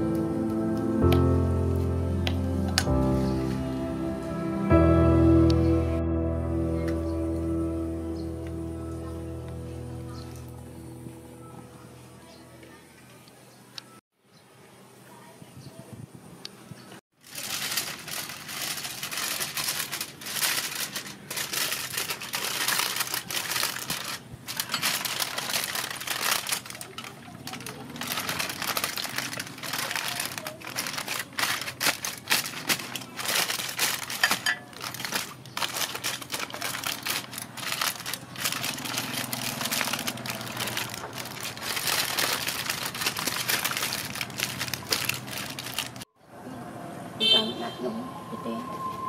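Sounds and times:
aluminium foil crinkling: 17.2 - 46.1.

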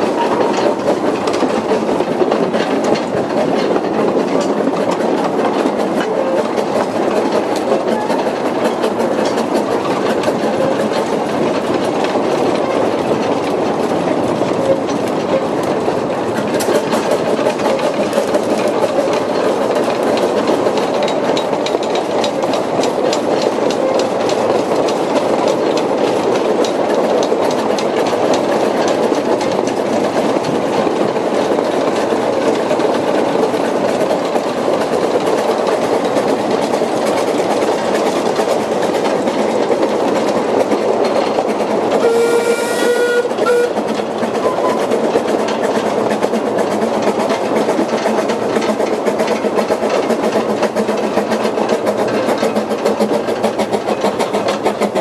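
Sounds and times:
steam train rumbling on rails: 0.0 - 55.0
steam whistle: 42.0 - 43.8.

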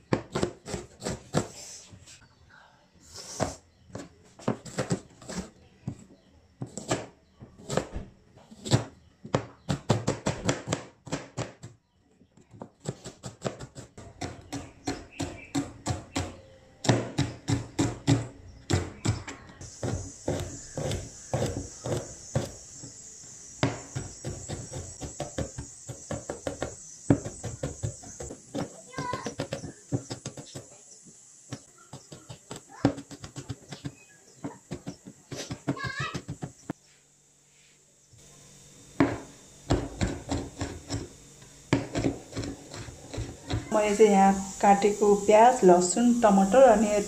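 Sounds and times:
knife chopping on plastic board: 0.0 - 1.5, 3.4 - 6.0, 6.6 - 8.0, 8.6 - 11.8, 12.5 - 23.0, 23.6 - 30.7, 31.5 - 36.6, 39.0 - 41.1, 41.7 - 43.7
steady hiss: 3.0 - 3.7, 19.6 - 47.0.

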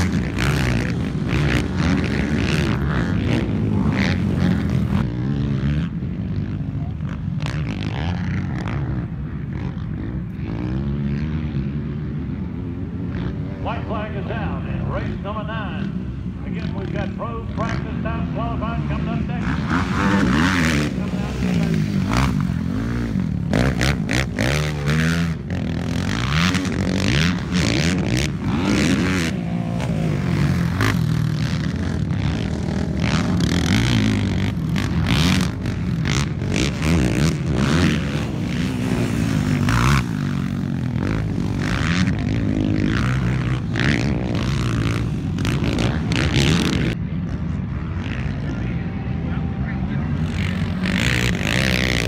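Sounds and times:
atv engines revving: 0.0 - 52.0.

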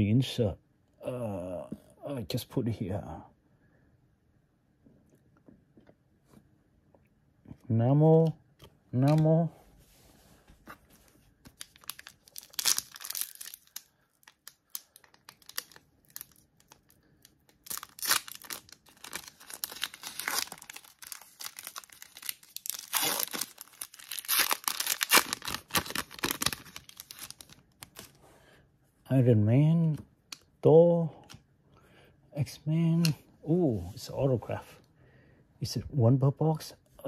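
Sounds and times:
wrapper crinkling and tearing: 11.5 - 28.2.

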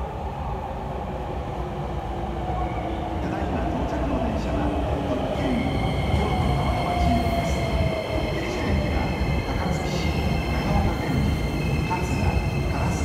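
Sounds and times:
train wheels rumbling on rail: 2.6 - 13.0.

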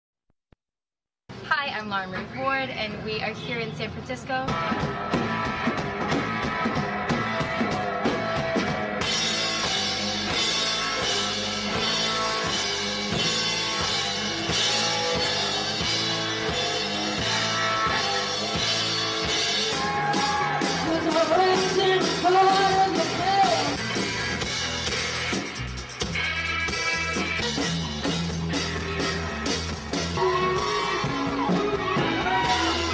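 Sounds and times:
rock band playing live: 4.4 - 32.9
woman singing lead vocal: 20.8 - 23.8.

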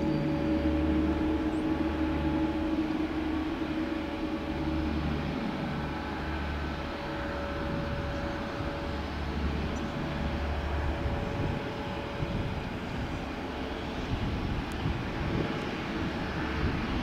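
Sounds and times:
jet engine whine: 0.0 - 17.0
low rumble: 0.0 - 17.0.

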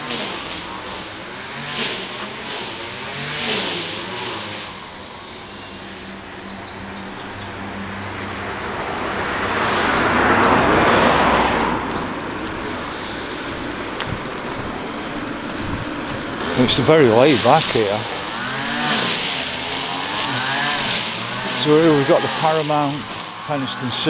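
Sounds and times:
car passing by: 0.0 - 24.0
low engine hum: 0.0 - 24.0.

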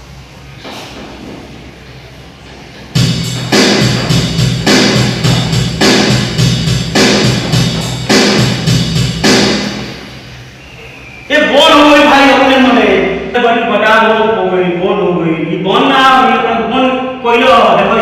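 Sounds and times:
electronic keyboard rhythm pattern: 2.6 - 10.3.

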